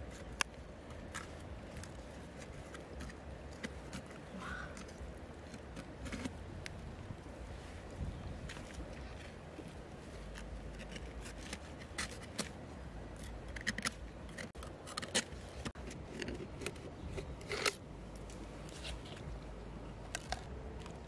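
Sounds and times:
knife scraping mussel shell: 10.3s - 17.8s.

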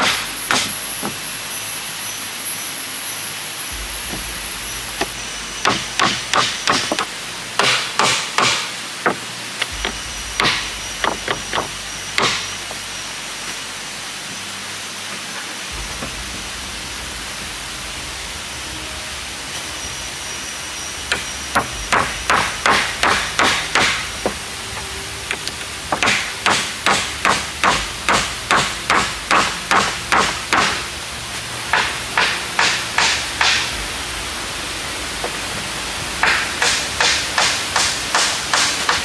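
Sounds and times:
steady hiss: 0.0s - 39.0s
hatchet knocking on wooden boards: 5.0s - 9.2s, 9.8s - 12.4s, 21.1s - 24.4s, 25.3s - 30.8s, 31.7s - 33.7s.

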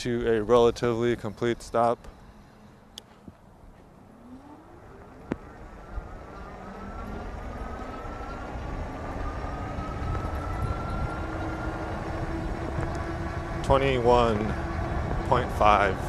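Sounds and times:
wind and tyre rush: 3.1s - 16.0s
electric motor whine rising: 3.8s - 16.0s.

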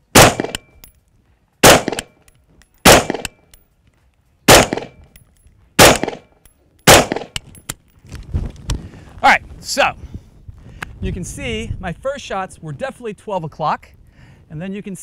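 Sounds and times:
rifle shots with echo: 0.1s - 0.7s, 1.6s - 2.2s, 2.8s - 3.4s, 4.5s - 5.0s, 5.8s - 7.4s.

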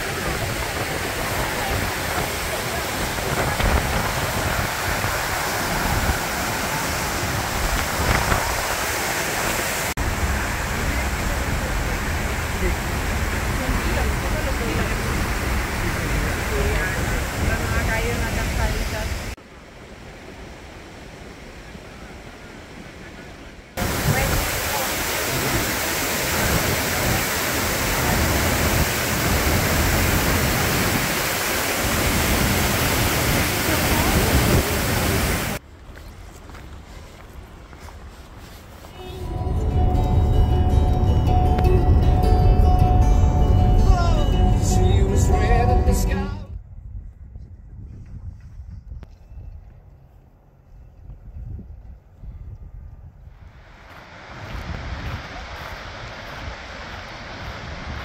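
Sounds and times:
waterfall rushing: 0.0s - 19.4s, 23.8s - 35.6s, 53.6s - 58.0s.

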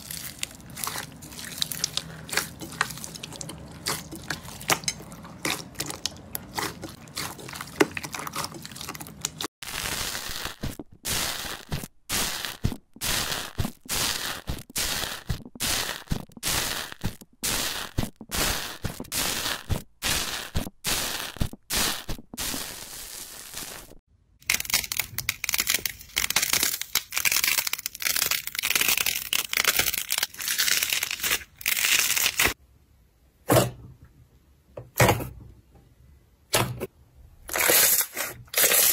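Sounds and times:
slime squishing: 0.0s - 9.5s.

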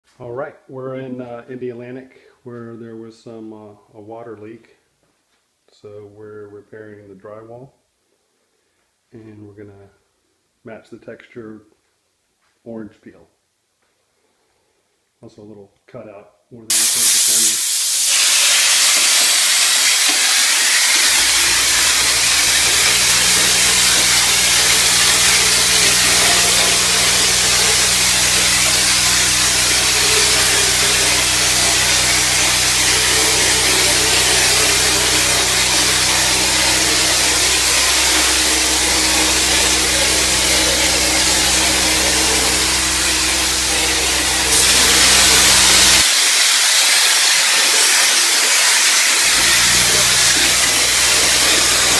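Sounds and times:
air compressor motor humming: 16.7s - 46.1s, 49.2s - 51.9s
compressed air spray hiss: 16.7s - 51.9s.

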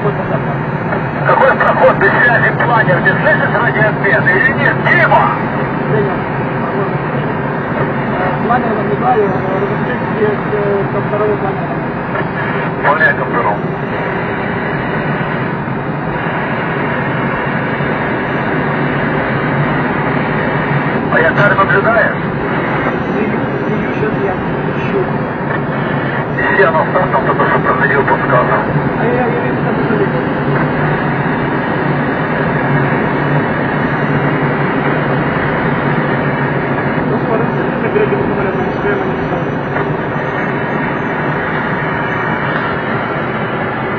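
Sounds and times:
airflow rushing past cockpit: 0.0s - 43.9s.

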